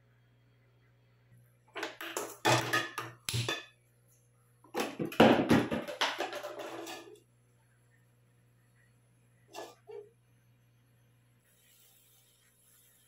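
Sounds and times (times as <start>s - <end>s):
metal cookware clattering: 1.8s - 3.7s, 4.8s - 7.2s, 9.5s - 10.0s.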